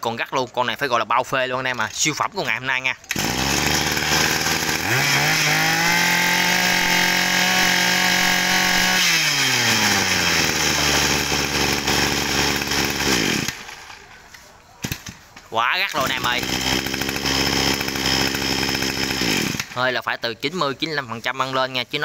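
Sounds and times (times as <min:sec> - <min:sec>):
brush cutter engine revving: 0:03.0 - 0:15.2, 0:15.8 - 0:20.1.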